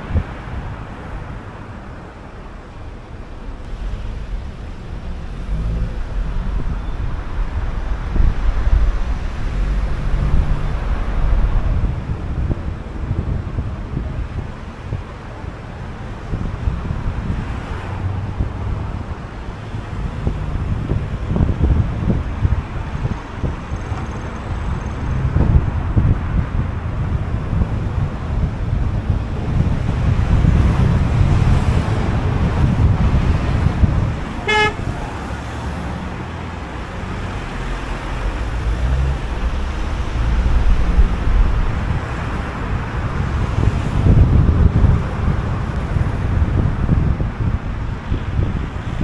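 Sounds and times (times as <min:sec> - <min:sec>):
car driving on city streets: 0:00.0 - 0:49.0
car horn toot: 0:34.4 - 0:35.0.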